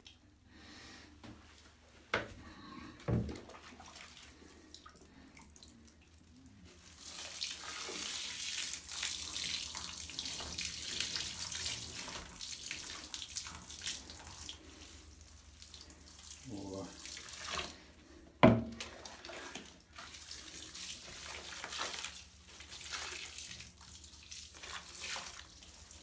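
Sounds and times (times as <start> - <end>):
water poured and splashing: 3.2 - 26.0.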